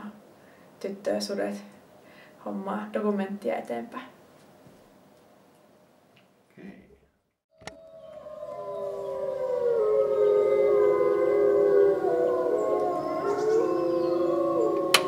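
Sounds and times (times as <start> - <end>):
wolves howling in chorus: 7.7 - 15.0.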